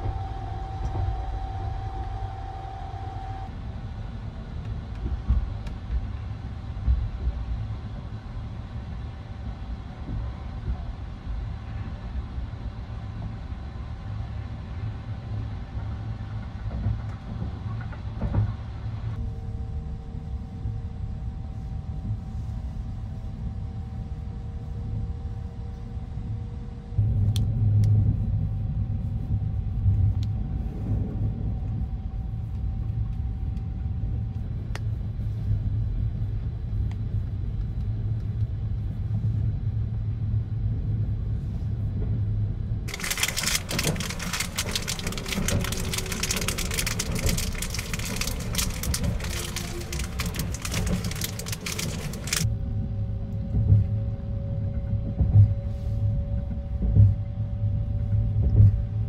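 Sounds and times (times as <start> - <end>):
train rumbling: 0.0 - 12.2, 42.0 - 59.0
plastic wrapper crackling: 42.9 - 52.4.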